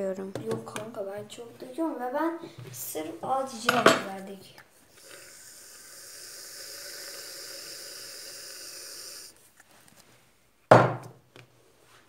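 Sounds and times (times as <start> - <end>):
aerosol can hissing: 4.9 - 9.4.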